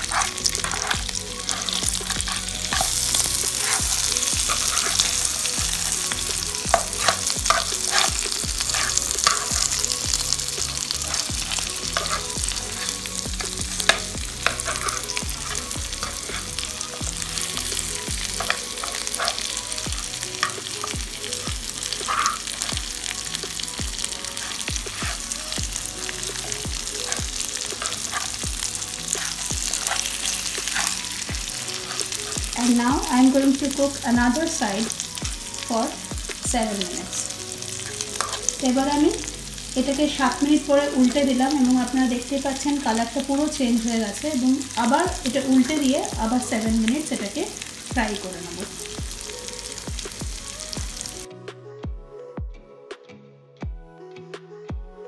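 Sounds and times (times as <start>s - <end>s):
metal spoon scraping pan: 0.0s - 21.0s, 21.9s - 22.8s, 26.2s - 32.5s, 37.8s - 38.6s
meat sizzling in oil: 0.0s - 51.3s.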